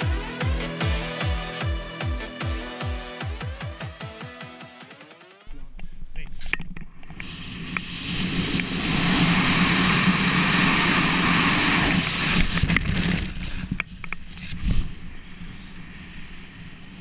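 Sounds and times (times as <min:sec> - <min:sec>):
wind rushing over microphone: 0:07.2 - 0:17.0.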